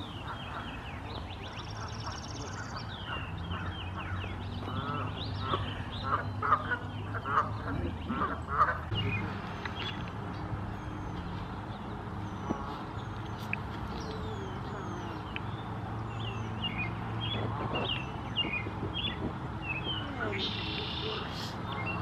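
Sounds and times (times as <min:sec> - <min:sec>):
loud low bird calls: 0:00.0 - 0:11.5.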